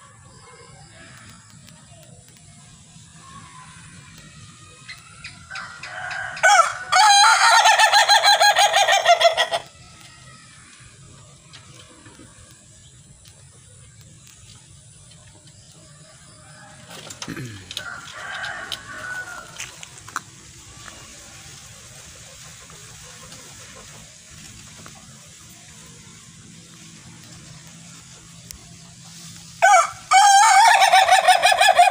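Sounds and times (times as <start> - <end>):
rooster crowing: 5.4 - 9.6, 16.3 - 19.9, 29.6 - 31.9
faint hiss: 9.6 - 30.1.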